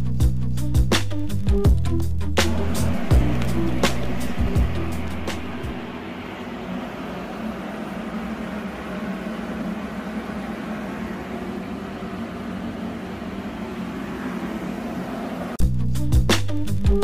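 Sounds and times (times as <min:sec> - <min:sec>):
steady machine hum with hiss: 0:02.4 - 0:15.6.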